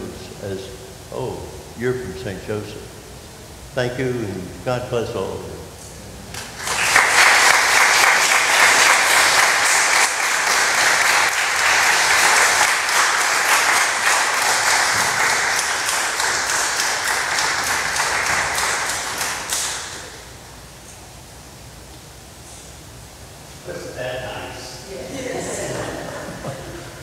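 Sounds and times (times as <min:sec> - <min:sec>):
congregation applauding: 0:06.4 - 0:20.3.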